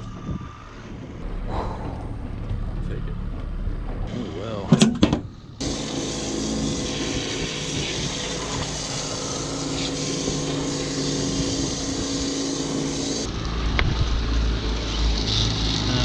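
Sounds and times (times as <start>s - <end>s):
pump hum: 5.3s - 16.0s
hose spraying water: 5.6s - 13.4s.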